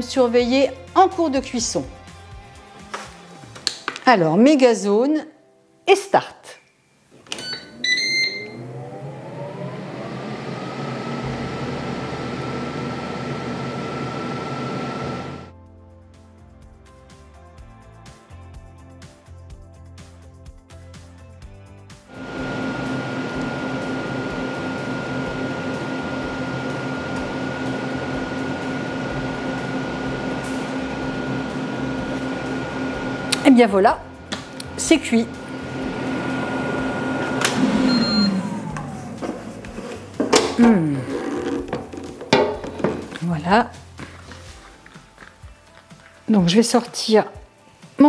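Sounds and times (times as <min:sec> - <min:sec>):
air fryer beep: 0:07.4 - 0:15.5, 0:22.2 - 0:33.4, 0:35.3 - 0:39.1
air fryer fan whirring: 0:07.8 - 0:15.5, 0:22.1 - 0:43.2.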